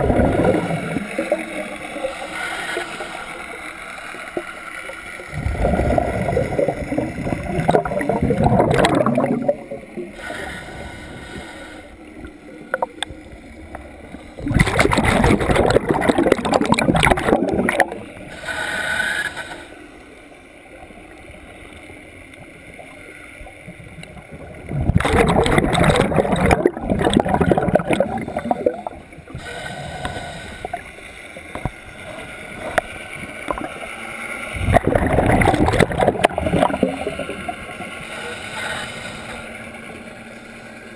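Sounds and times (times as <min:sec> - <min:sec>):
diver exhaling bubbles underwater: 0:00.0 - 0:02.4, 0:05.3 - 0:10.9, 0:14.1 - 0:18.3, 0:24.0 - 0:30.9, 0:34.5 - 0:37.9.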